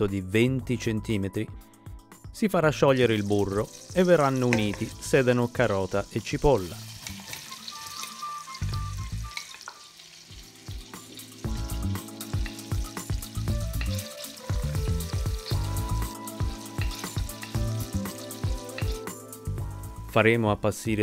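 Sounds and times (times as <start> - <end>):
background music: 0.0 - 21.0
vegetables sizzling in butter: 3.0 - 19.6.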